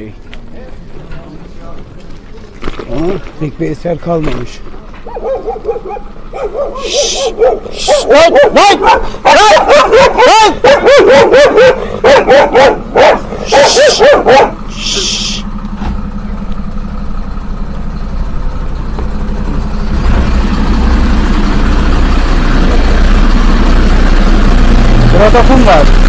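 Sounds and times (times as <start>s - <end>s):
truck diesel engine running: 0.0s - 26.0s
dog barking: 5.0s - 14.9s
hiss: 6.8s - 8.1s, 14.7s - 15.5s.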